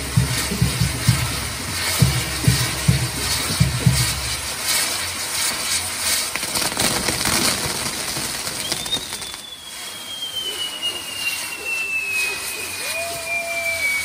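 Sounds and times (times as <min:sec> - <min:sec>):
fireworks hissing and crackling: 0:00.0 - 0:14.0
high whistle falling in pitch: 0:08.4 - 0:14.0.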